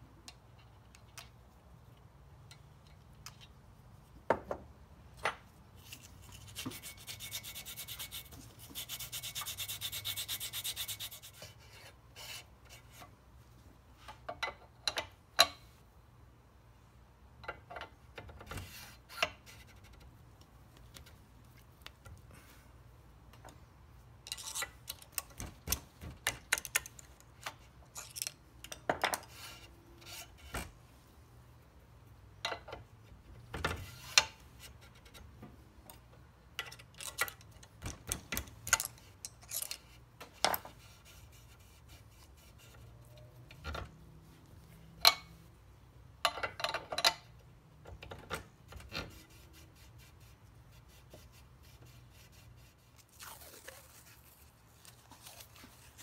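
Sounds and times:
metallic clicks knocks and scraping: 0.1 - 3.7, 14.0 - 15.8, 17.4 - 22.2, 24.2 - 30.7, 32.4 - 41.2, 46.2 - 49.3.

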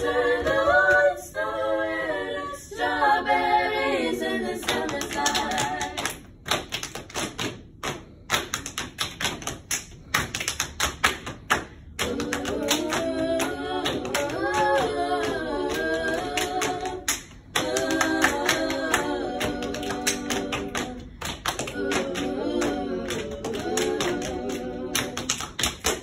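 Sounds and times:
voices singing wordless chords: 0.0 - 6.2, 12.0 - 26.0
hand claps and body pats: 4.6 - 26.0.

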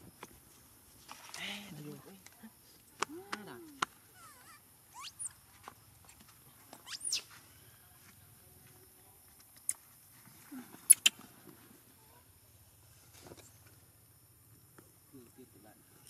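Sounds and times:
baby monkey squealing: 4.2 - 5.4, 6.8 - 7.3, 10.9 - 11.2.

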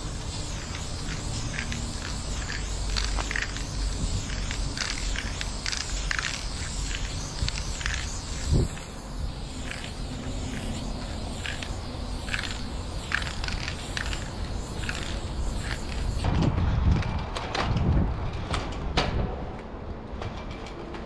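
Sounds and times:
spray paint can hissing: 0.0 - 16.3.

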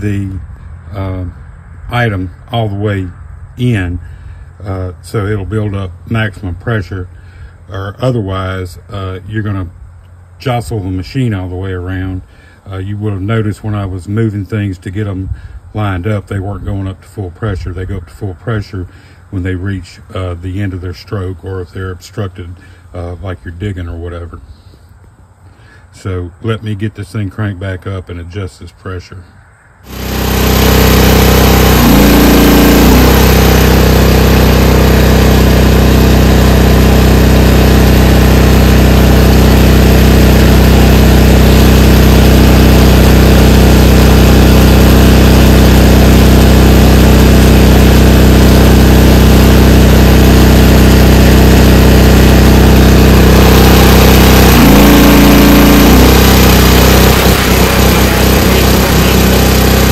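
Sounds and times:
excavator engine running: 0.0 - 1.3, 29.8 - 59.9
hydraulics straining at full pressure: 29.8 - 59.9.

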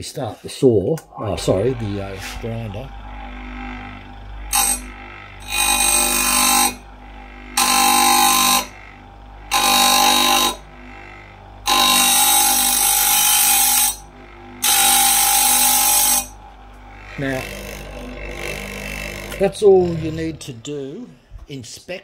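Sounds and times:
grinder motor hum: 1.0 - 21.6
high grinding on steel: 1.0 - 21.8.

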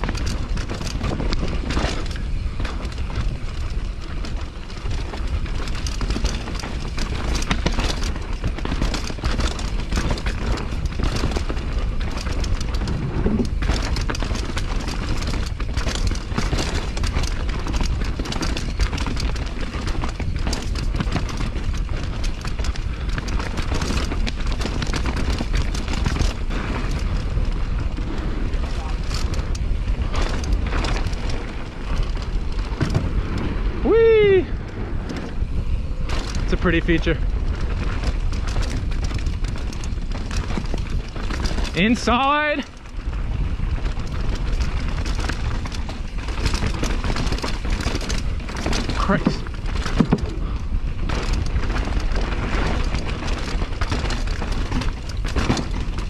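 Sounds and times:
bike clattering over bumps: 0.0 - 56.0
tyres rolling on dirt: 0.0 - 56.0
wind buffeting microphone: 0.0 - 56.0.

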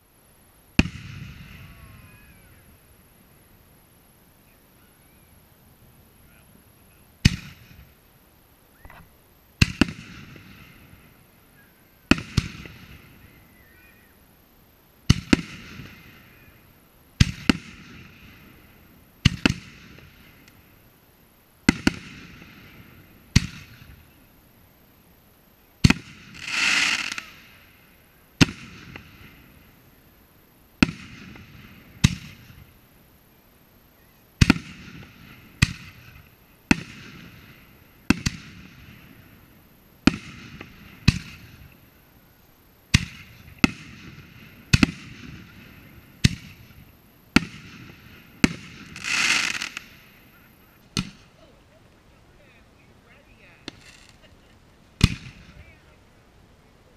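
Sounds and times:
firework rushing burst: 6.2 - 8.1, 8.8 - 14.0, 25.8 - 30.0, 34.4 - 42.0, 42.9 - 51.4, 53.6 - 55.9.

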